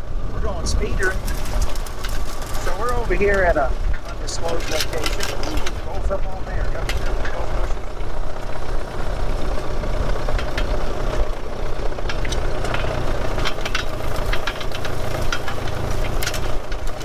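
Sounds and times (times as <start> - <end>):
wind rumble on microphone: 0.0 - 11.4
car engine running: 0.0 - 17.0
wheels clicking on rails: 0.0 - 17.0.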